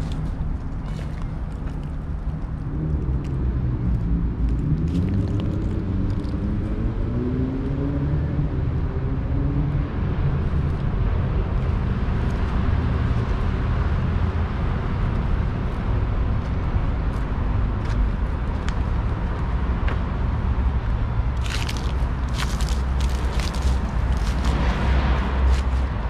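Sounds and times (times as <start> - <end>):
low rumble of traffic: 0.0 - 26.0
vehicle engine passing: 21.4 - 26.0.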